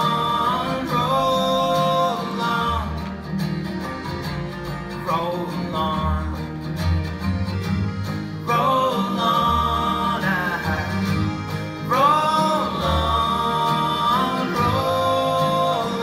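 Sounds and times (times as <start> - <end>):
person singing: 0.0 - 3.1, 8.4 - 16.0
folk band playing: 0.0 - 16.0
held melody line: 0.0 - 16.0.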